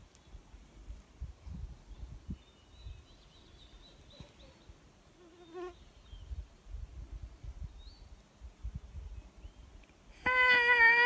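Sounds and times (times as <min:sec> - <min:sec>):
low wind rumble: 0:00.3 - 0:03.8, 0:06.0 - 0:10.2.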